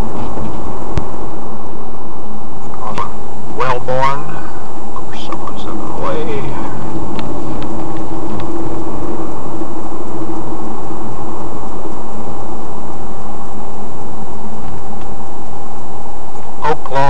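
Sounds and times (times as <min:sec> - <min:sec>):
steady hum: 0:00.0 - 0:17.0
road and engine noise: 0:02.7 - 0:12.8.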